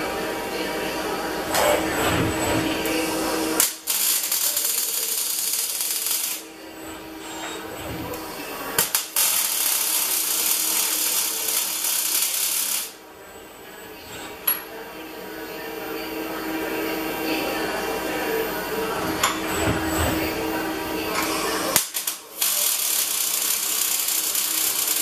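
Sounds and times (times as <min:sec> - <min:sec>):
welding arc crackle and hiss: 0:03.6 - 0:06.5, 0:08.8 - 0:13.0, 0:21.7 - 0:25.0.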